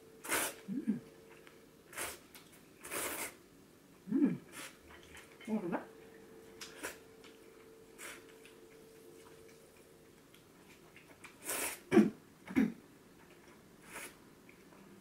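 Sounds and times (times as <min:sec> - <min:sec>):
faint steady hum: 0:00.0 - 0:15.0
person slurping noodles: 0:00.2 - 0:00.7, 0:02.8 - 0:03.4, 0:11.4 - 0:11.9
mouth sounds: 0:00.2 - 0:01.1, 0:04.0 - 0:04.7.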